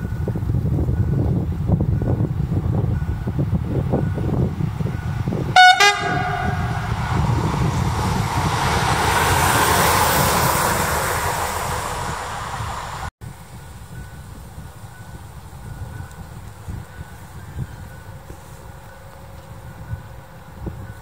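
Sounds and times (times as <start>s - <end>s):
locomotive running noise: 0.0s - 21.0s
locomotive horn blast: 5.5s - 9.4s.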